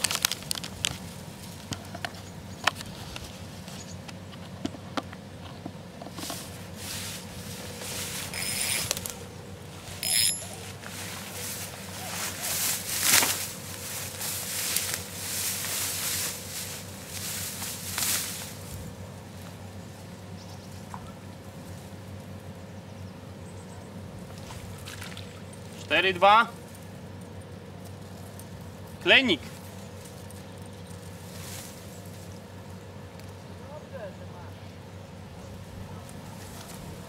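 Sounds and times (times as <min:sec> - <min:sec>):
footsteps through tall grass: 0:06.3 - 0:19.6, 0:31.0 - 0:32.4.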